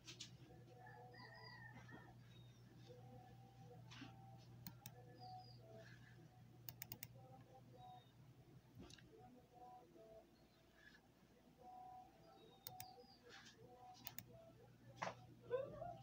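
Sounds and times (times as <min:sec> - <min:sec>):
faint low hum: 0:00.0 - 0:16.0
faint bird chirps: 0:00.8 - 0:08.3, 0:11.6 - 0:14.4
computer mouse clicks: 0:04.6 - 0:05.0, 0:06.6 - 0:07.2, 0:12.6 - 0:13.0, 0:14.0 - 0:14.3.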